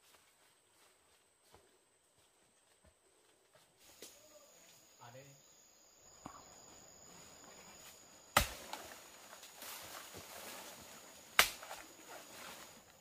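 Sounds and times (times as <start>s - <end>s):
high-pitched insect tone: 3.8s - 13.0s
sharp chopping blows: 8.3s - 8.8s, 11.4s - 11.8s.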